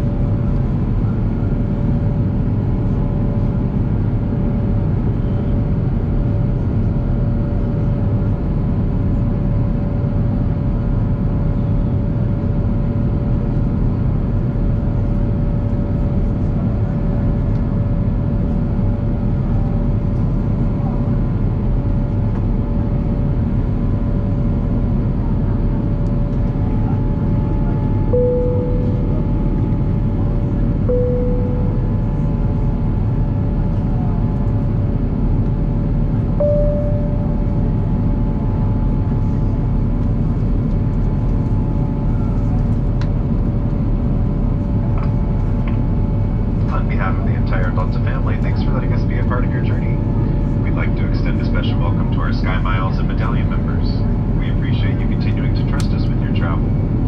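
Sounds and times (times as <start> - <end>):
jet engine cabin rumble: 0.0 - 57.0
thin steady whine: 26.8 - 33.3, 36.4 - 38.7
short tone: 28.1 - 29.6, 30.9 - 32.2, 36.4 - 37.8.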